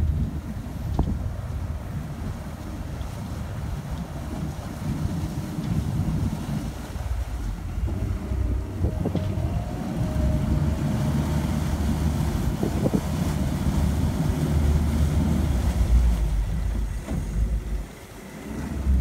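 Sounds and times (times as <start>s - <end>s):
outboard motors running: 0.0s - 19.0s
propellers churning water: 0.0s - 19.0s
wind buffeting microphone: 0.0s - 19.0s.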